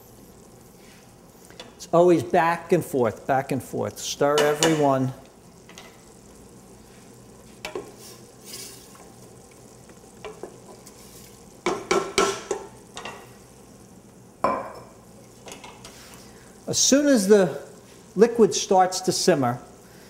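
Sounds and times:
low steady hiss: 0.0s - 20.0s
wooden spoon stirring in a pot: 6.8s - 13.3s
spoon knocking against a pot: 11.6s - 12.6s.

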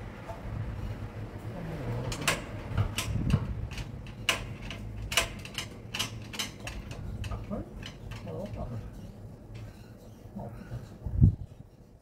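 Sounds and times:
metal tools clicking and clinking: 2.0s - 9.7s.

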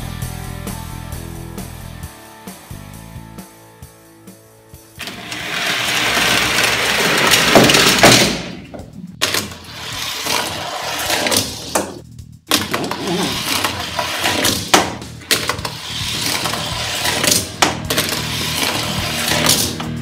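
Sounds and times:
toy cars rolling down plastic ramp: 5.0s - 8.5s, 9.2s - 20.0s.

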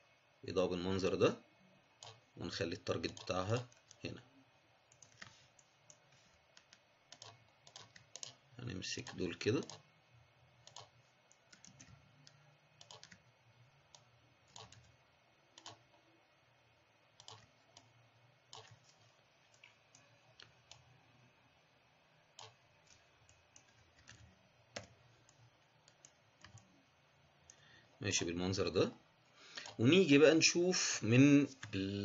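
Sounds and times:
faint low hum: 0.0s - 32.0s
mouse and keyboard clicks: 4.9s - 8.4s, 10.6s - 13.2s, 13.9s - 14.9s, 15.6s - 15.8s, 17.2s - 17.9s, 18.5s - 18.9s, 22.4s - 26.7s.

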